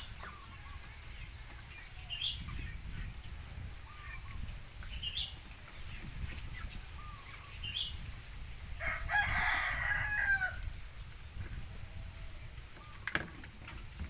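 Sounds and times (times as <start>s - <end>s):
rooster crowing: 8.8s - 10.6s.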